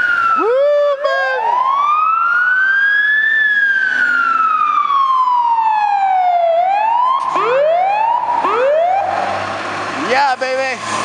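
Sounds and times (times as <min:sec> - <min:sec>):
fire truck siren wailing: 0:00.0 - 0:11.0.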